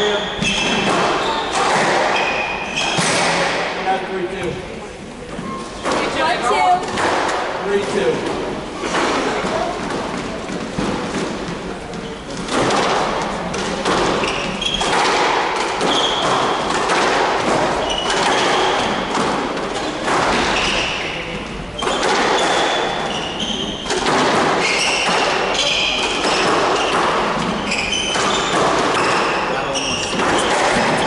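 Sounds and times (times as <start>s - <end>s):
shoes squeaking on wooden floor: 0.0s - 3.6s, 4.3s - 7.0s, 8.0s - 12.6s, 13.6s - 16.8s, 17.4s - 19.1s, 20.4s - 31.0s
squash ball struck by racquets: 0.0s - 4.6s, 5.8s - 31.0s.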